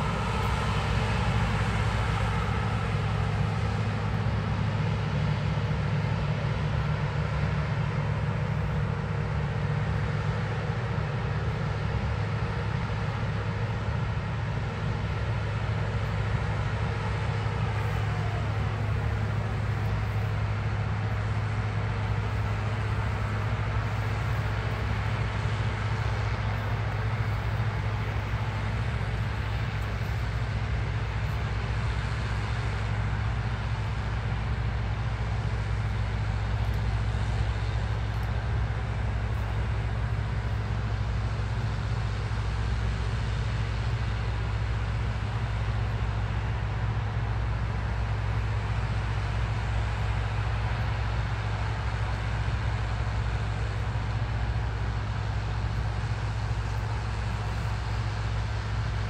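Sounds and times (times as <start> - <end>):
combine harvester engine hum: 0.0 - 59.0.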